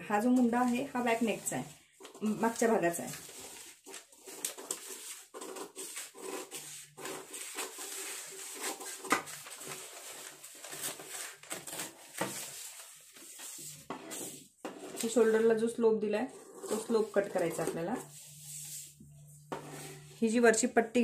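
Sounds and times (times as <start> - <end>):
paper rustling: 0.2 - 15.5
scissors snipping paper: 3.2 - 12.6.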